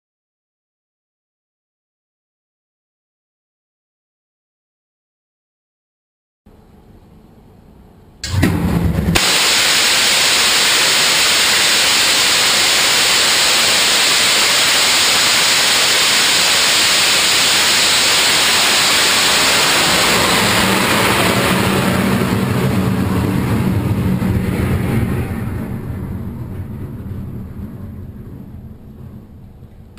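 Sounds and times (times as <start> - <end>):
low rumble with buzzing tone: 6.5 - 29.9
rocket motor ignition burst: 8.2 - 22.7
rocket motor rushing hiss: 8.2 - 23.6.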